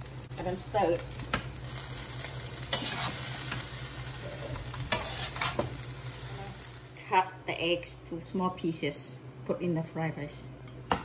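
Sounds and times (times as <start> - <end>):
rice frying in wok: 0.0 - 7.1
metal spatula scraping wok: 2.5 - 6.2.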